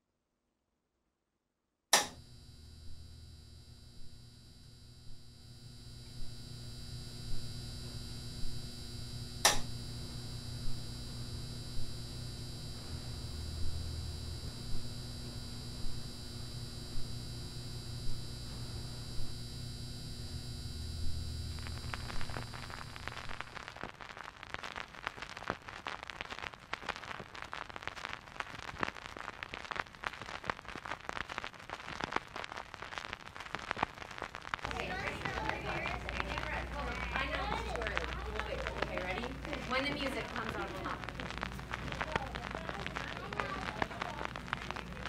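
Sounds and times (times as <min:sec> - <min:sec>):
record player switch click: 0:02.0 - 0:02.2, 0:09.4 - 0:09.7
steady electrical hum: 0:02.0 - 0:25.2, 0:34.4 - 0:45.0
vinyl surface crackle: 0:02.0 - 0:45.0.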